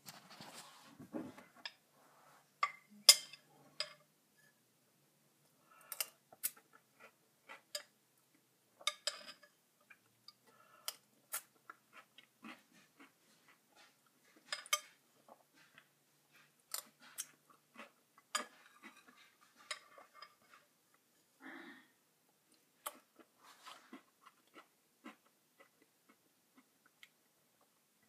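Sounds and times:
chewing: 0:09.8 - 0:21.0, 0:22.5 - 0:27.8.

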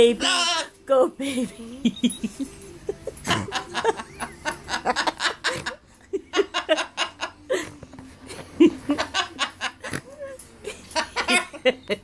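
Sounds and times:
laughter in short bursts: 0:01.8 - 0:07.7.

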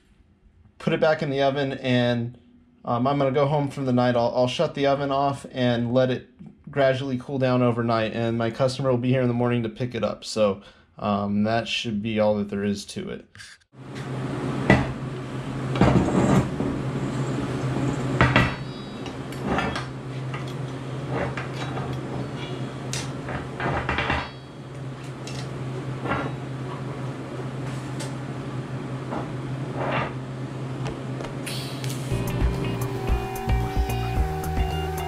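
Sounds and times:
steady low hum: 0:13.4 - 0:35.0.

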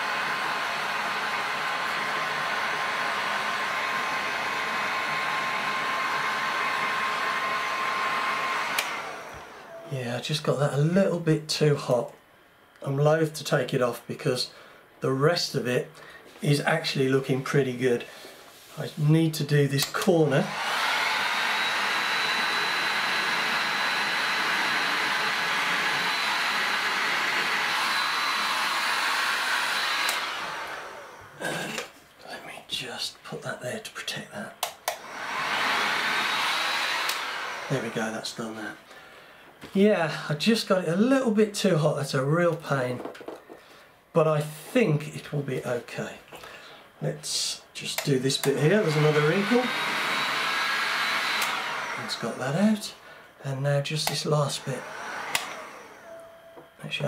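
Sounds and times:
heat gun blowing with whine: 0:00.0 - 0:09.8, 0:19.8 - 0:32.0, 0:34.6 - 0:38.7, 0:47.4 - 0:52.8, 0:54.0 - 0:56.7
heat gun switch click: 0:55.3 - 0:55.6.

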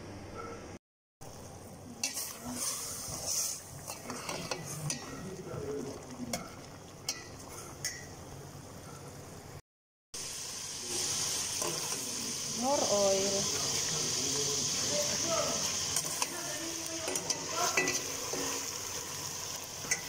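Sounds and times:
faint sizzle: 0:01.2 - 0:09.6, 0:10.2 - 0:20.0
metal spoon clinking on pot: 0:03.9 - 0:05.3, 0:06.3 - 0:08.2, 0:17.0 - 0:18.6.

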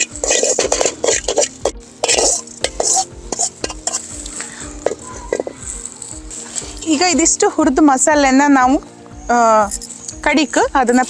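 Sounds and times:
spoon scraping spices in metal pan: 0:00.0 - 0:07.2.

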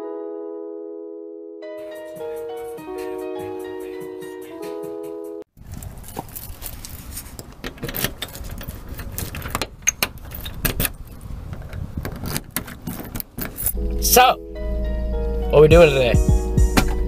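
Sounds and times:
key turning in lock: 0:07.4 - 0:13.8
keys jangling on a ring: 0:12.9 - 0:13.8.

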